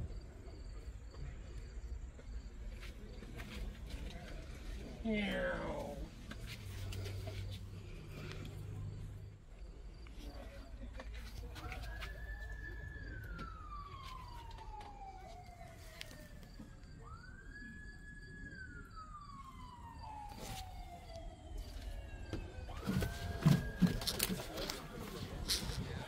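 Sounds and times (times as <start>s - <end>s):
siren wailing: 4.8s - 6.2s, 11.5s - 26.0s.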